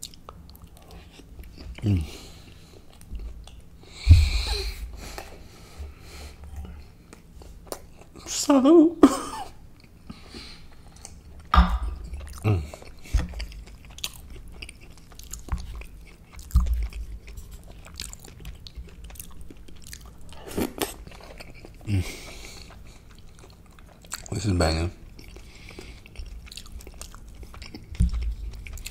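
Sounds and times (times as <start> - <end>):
person chewing with wet mouth sounds: 0.0 - 8.3, 9.7 - 28.9
sharp knocks and low thumps: 4.0 - 4.5, 11.6 - 12.0.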